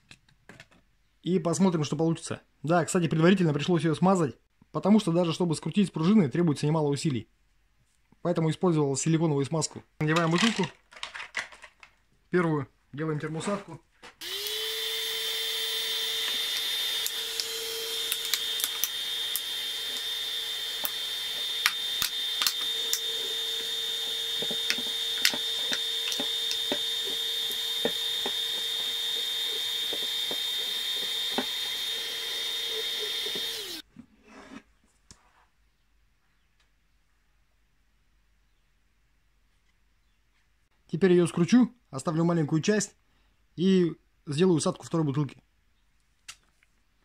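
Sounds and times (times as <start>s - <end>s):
heat gun whine and air rush: 14.2s - 33.8s
sharp clicks: 16.2s - 33.8s.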